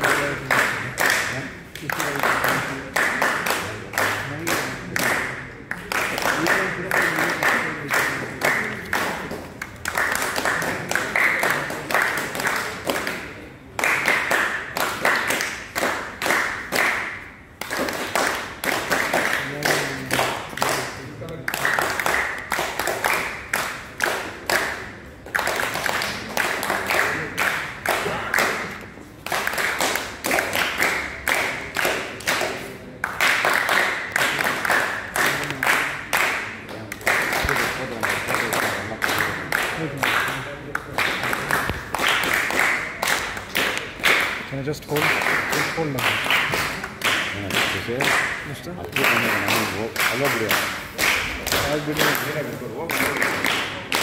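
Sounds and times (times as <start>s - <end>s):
people clapping in rhythm: 0.0s - 54.0s.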